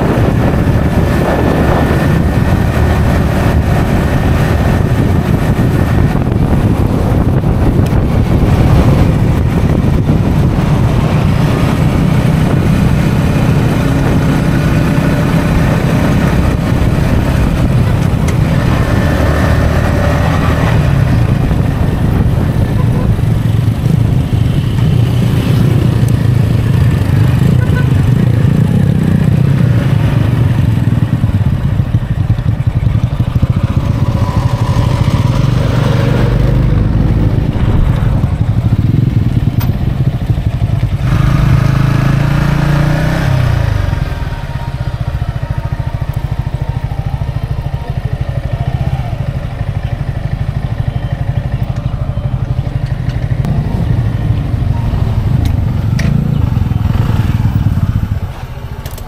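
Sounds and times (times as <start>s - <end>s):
wind rush: 0.0s - 47.2s
motorcycle engine running: 0.0s - 59.0s.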